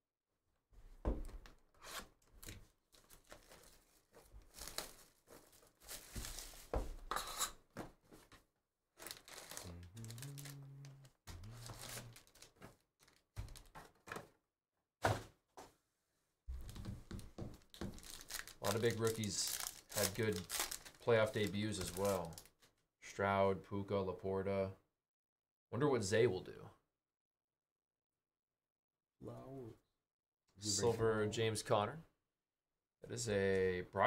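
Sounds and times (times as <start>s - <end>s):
plastic wrap tearing: 2.4s - 6.7s, 9.0s - 10.6s, 11.4s - 13.8s, 17.6s - 22.6s
foil packs crinkling: 2.9s - 6.9s, 9.0s - 10.6s, 11.4s - 13.8s, 17.6s - 22.6s.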